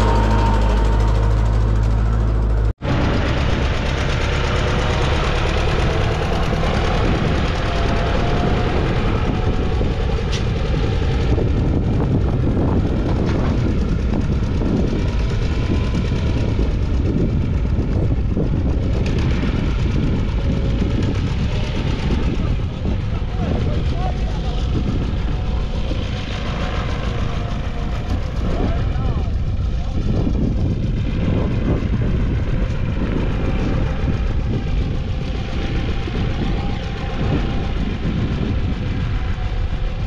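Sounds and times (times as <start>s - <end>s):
tractor diesel engine running: 0.0s - 40.0s.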